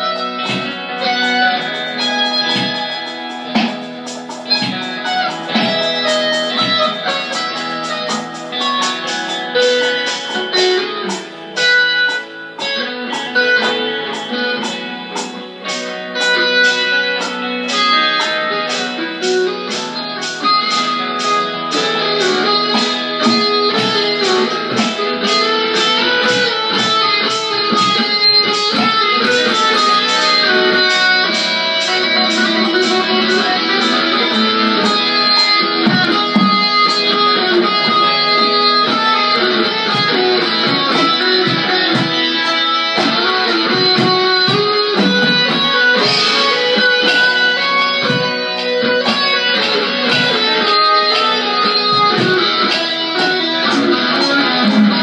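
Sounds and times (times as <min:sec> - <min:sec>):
electric guitar playing: 0:00.0 - 0:55.0.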